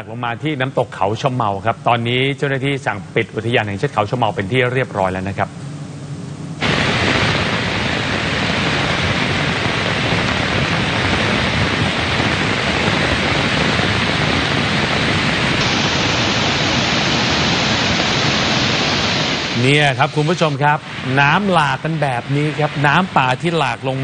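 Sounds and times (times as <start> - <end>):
flood water rushing: 9.2 - 23.7.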